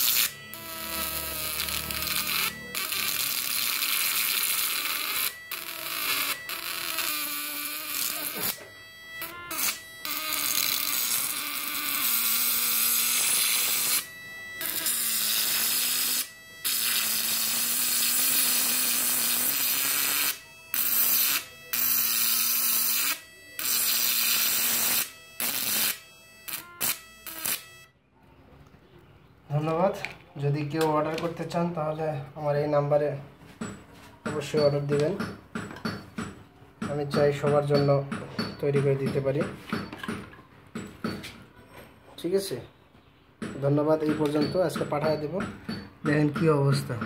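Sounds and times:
electric arc buzzing: 0:00.0 - 0:27.9.

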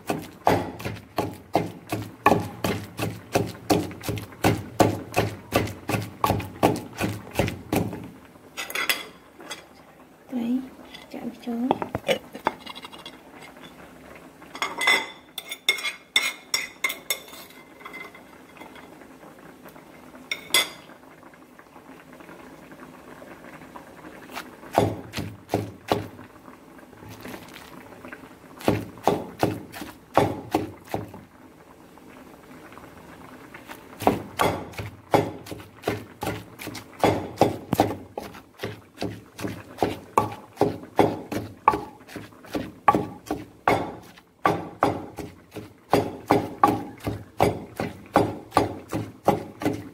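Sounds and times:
wooden pestle pounding in mortar: 0:00.0 - 0:08.0, 0:24.7 - 0:26.1, 0:28.6 - 0:31.1, 0:34.0 - 0:49.9.

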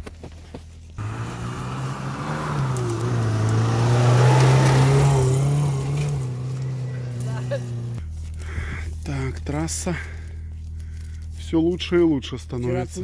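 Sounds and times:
off-road engine passing: 0:01.0 - 0:08.1.

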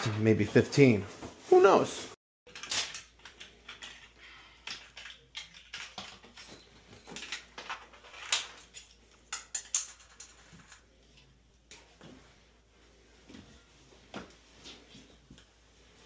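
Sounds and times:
tools clinking and rustling: 0:02.5 - 0:12.0.

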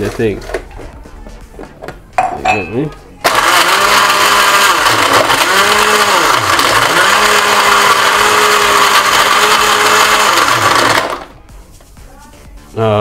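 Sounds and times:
blender crushing ice: 0:03.2 - 0:11.3.

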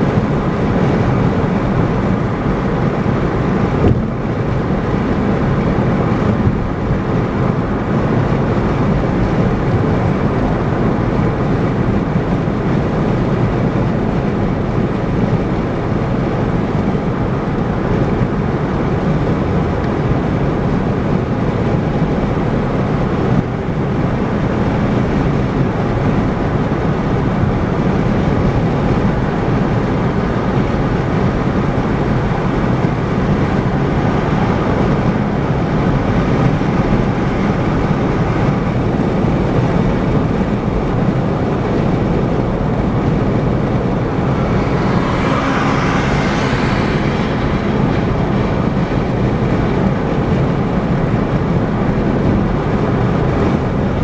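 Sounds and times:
car tyre and wind noise: 0:00.0 - 0:54.0.

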